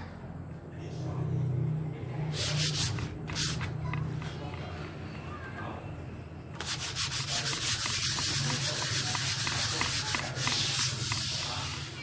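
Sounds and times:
hand sanding wood: 0:02.3 - 0:04.6, 0:06.6 - 0:12.0.

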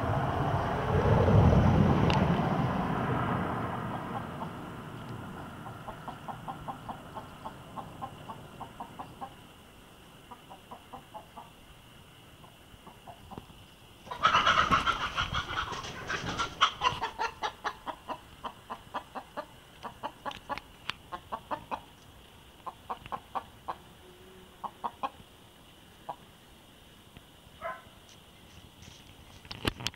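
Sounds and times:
chicken clucking rapidly: 0:05.5 - 0:09.4, 0:10.3 - 0:11.6, 0:12.4 - 0:21.9, 0:22.6 - 0:23.9, 0:24.6 - 0:25.2
hen squawking: 0:14.1 - 0:18.2.

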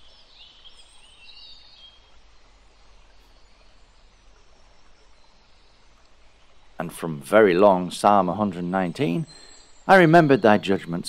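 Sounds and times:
small birds chirping: 0:00.0 - 0:11.0
steady low hiss: 0:00.0 - 0:11.0.

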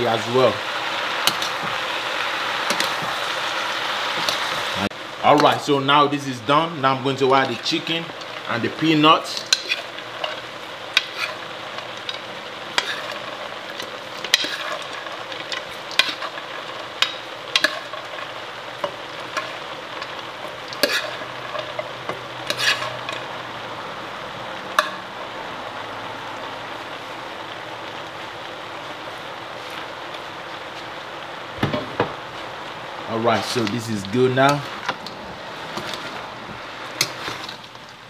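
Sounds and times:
food sizzling in a pan: 0:00.0 - 0:38.0
utensil scraping and knocking pan: 0:09.4 - 0:11.4, 0:12.0 - 0:13.4, 0:14.2 - 0:23.2.

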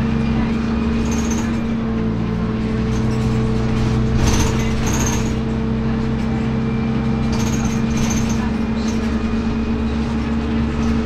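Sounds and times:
bus engine drone: 0:00.0 - 0:11.0
road and tyre noise: 0:00.0 - 0:11.0
body squeaks and rattles: 0:03.0 - 0:05.4, 0:07.3 - 0:09.2.

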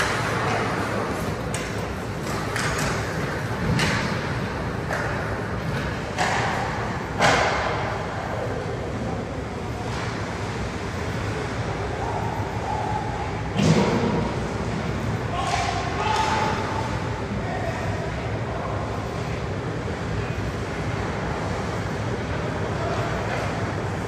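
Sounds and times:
hockey sticks and skates knocking: 0:00.0 - 0:04.3, 0:04.9 - 0:06.6
arena noise: 0:00.0 - 0:24.0.

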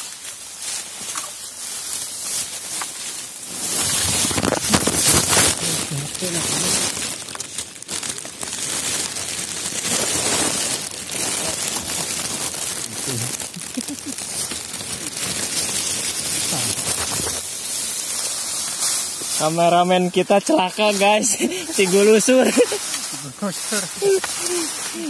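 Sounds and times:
dry leaves crunching: 0:00.0 - 0:25.0
microphone rubbing: 0:03.5 - 0:06.9, 0:16.4 - 0:17.4.

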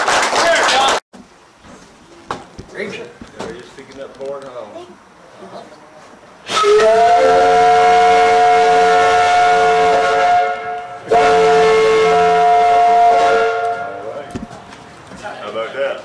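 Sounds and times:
steam whistle blasts: 0:06.4 - 0:14.2.

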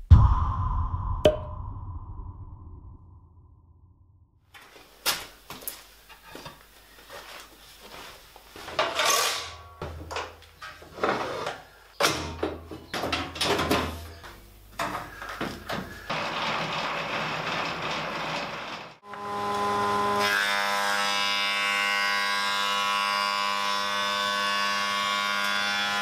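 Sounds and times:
metal clunks and rattles of machine parts: 0:08.7 - 0:10.8, 0:12.0 - 0:14.0.

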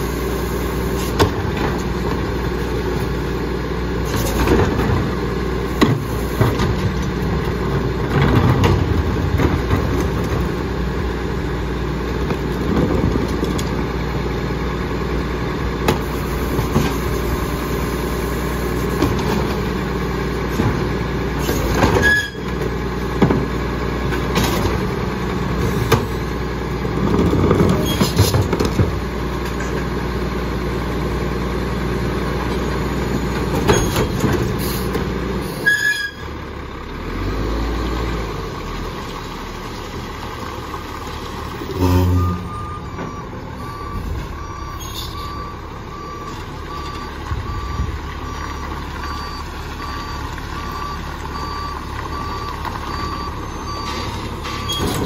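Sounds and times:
garbage truck engine running: 0:00.0 - 0:55.0
truck backup alarm beeping: 0:35.5 - 0:36.4, 0:41.6 - 0:55.0.

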